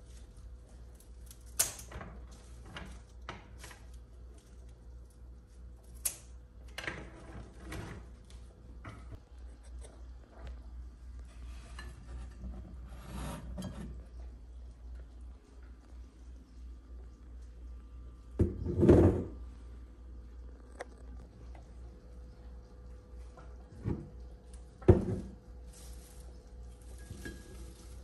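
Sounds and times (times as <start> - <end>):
steady low hum: 0.0 - 28.0
glass vases clinking: 26.8 - 28.0.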